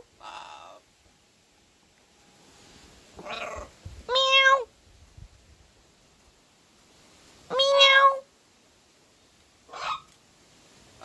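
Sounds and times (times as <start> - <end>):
parrot mimicking animal calls: 0.2 - 0.8, 3.2 - 4.7, 7.5 - 8.2, 9.7 - 10.1.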